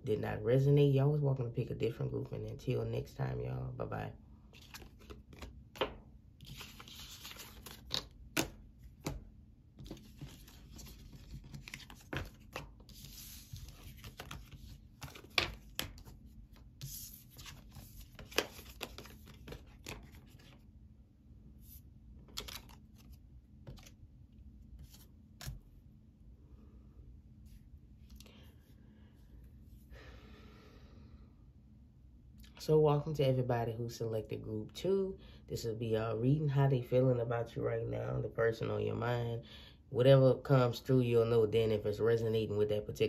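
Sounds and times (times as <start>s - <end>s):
cards rustling: 4.5s - 20.6s, 21.6s - 24.0s, 24.7s - 25.7s
cards tapping and flicking: 4.6s - 16.2s, 16.8s - 20.6s, 22.2s - 24.0s.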